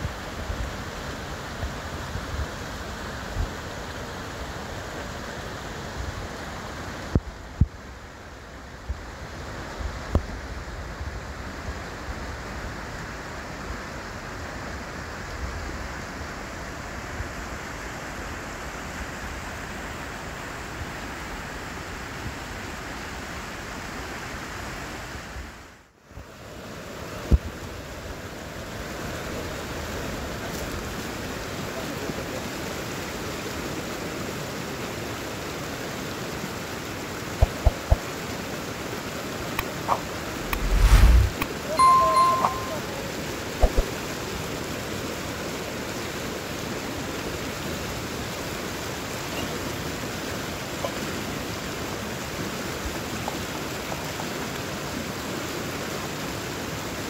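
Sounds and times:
stream rushing over stones: 26.2s - 57.0s.

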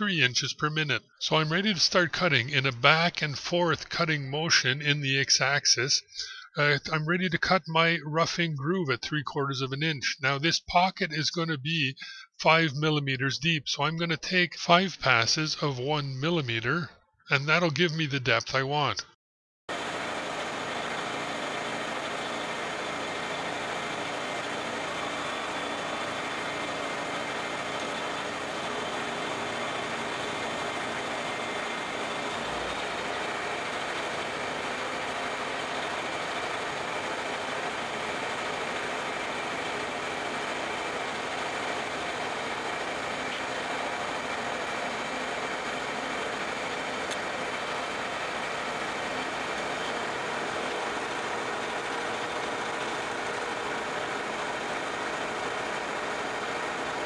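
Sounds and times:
milling machine whirring and cutting: 19.7s - 57.0s.

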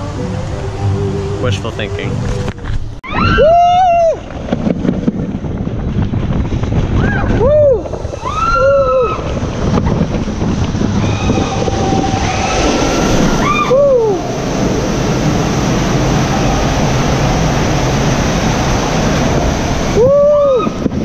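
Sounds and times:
air rushing on microphone: 1.4s - 21.0s
raft sliding down water slide: 2.2s - 21.0s
person whooping: 3.1s - 4.2s, 7.0s - 9.3s, 11.0s - 14.4s, 20.0s - 20.8s
rushing splashing water: 7.9s - 21.0s.

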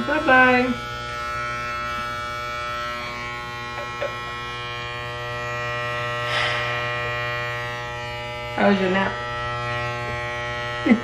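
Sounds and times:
electric hair clippers buzzing: 0.0s - 11.0s
brief hiss: 6.3s - 6.7s.

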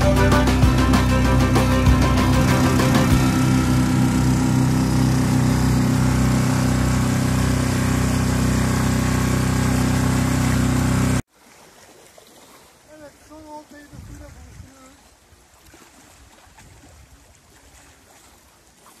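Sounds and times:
outboard motor running: 0.0s - 11.2s.

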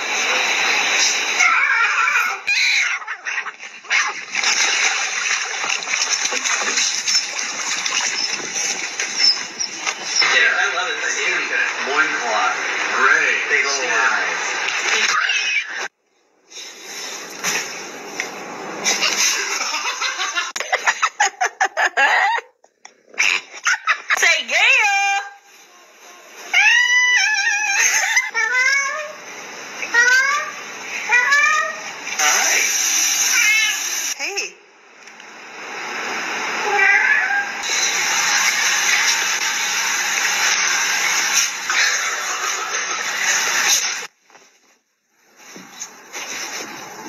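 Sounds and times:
sea water splashing: 3.6s - 10.0s.

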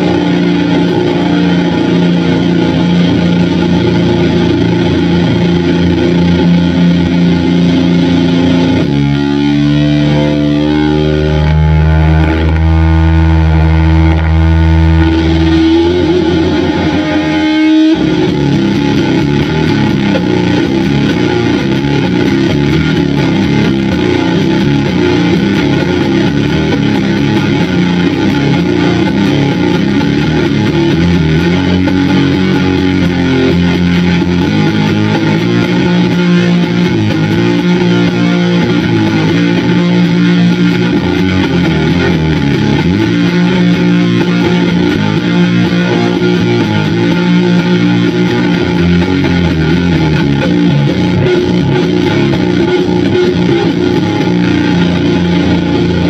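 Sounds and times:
heavily fuzzed electric guitar riffing: 0.0s - 56.0s.

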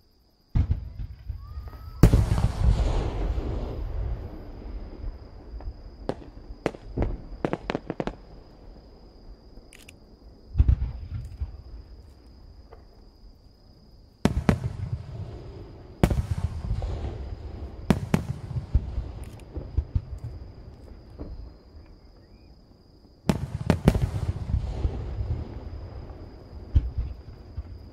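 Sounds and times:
firework booms with rumble: 0.5s - 9.1s, 10.5s - 11.9s, 14.2s - 21.7s, 23.3s - 27.9s
firework cracks: 0.6s - 8.7s, 14.2s - 20.8s, 23.3s - 25.9s.

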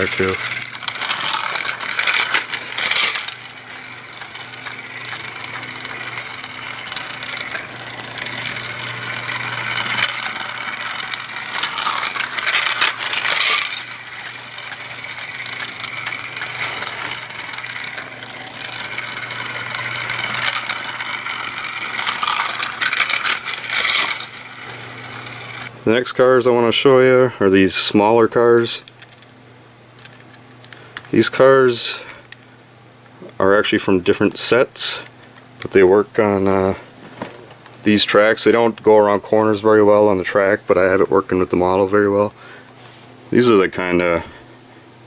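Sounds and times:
plastic wheels rattling on track: 0.0s - 25.7s
small electric motor humming: 0.0s - 25.7s.

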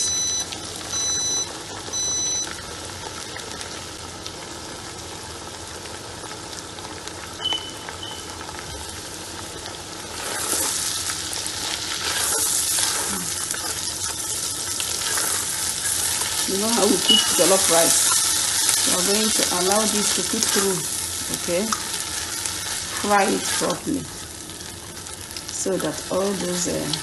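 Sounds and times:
puree sizzling in hot oil: 0.0s - 27.0s
short high electronic beeps: 7.4s - 8.3s, 17.0s - 17.5s
spatula stirring in pot: 12.0s - 16.4s.

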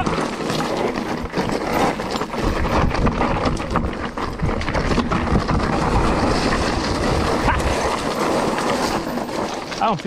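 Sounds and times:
bike rattling: 0.0s - 10.0s
bike tyres crunching over stones: 0.0s - 10.0s
wind buffeting microphone: 1.1s - 8.6s.

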